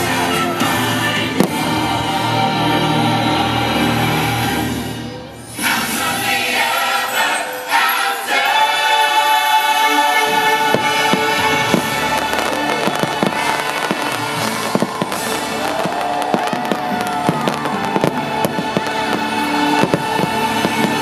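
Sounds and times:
fireworks bangs and crackles: 0:00.0 - 0:02.4, 0:10.2 - 0:21.0
music with steady chords: 0:00.0 - 0:21.0.

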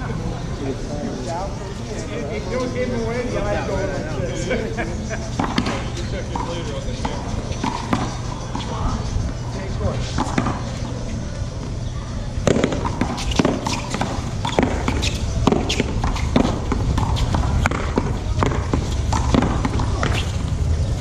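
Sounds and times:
paddles hitting ball: 0:12.4 - 0:20.5.

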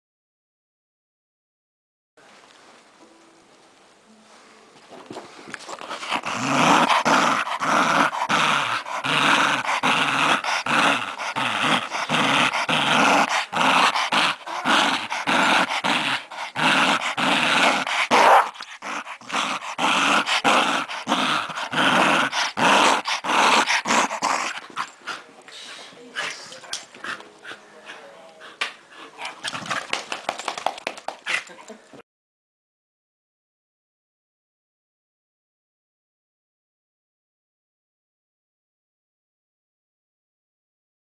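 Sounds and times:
dog play growling: 0:05.5 - 0:25.4, 0:26.2 - 0:31.6.

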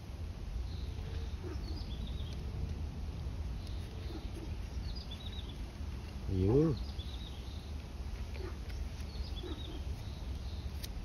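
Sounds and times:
high bird chirps: 0:03.6 - 0:05.7, 0:08.4 - 0:10.8.

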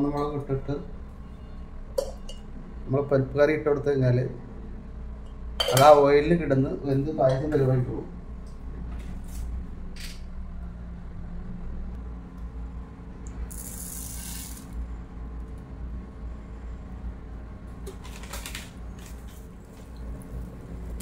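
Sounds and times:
low hum: 0:04.2 - 0:21.0
seeds sizzling in hot oil: 0:13.5 - 0:14.8.

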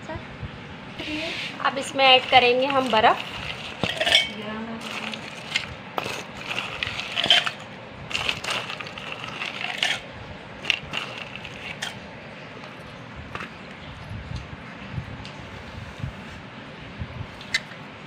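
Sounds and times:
ice cubes clinking: 0:02.1 - 0:12.0.

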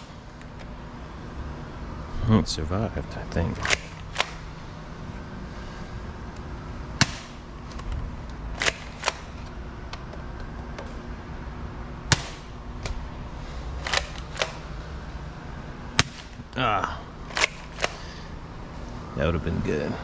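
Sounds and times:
salt gun snapping and clacking: 0:13.8 - 0:14.6, 0:17.3 - 0:18.0.

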